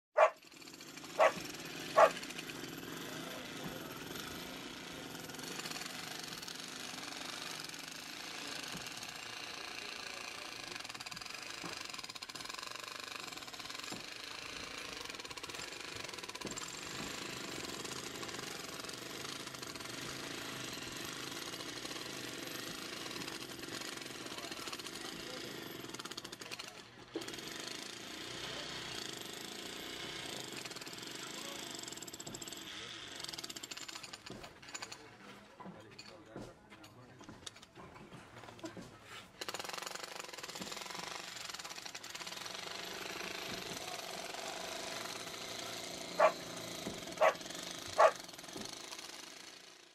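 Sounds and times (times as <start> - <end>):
noisy background din: 46.2 - 47.4, 48.0 - 48.2.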